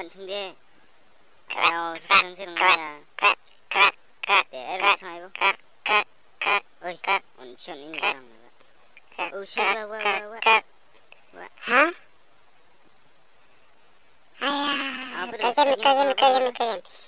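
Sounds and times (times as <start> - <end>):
crickets chirring: 0.0 - 17.0
cartoon vocal exclamations: 11.5 - 12.0, 14.4 - 16.7.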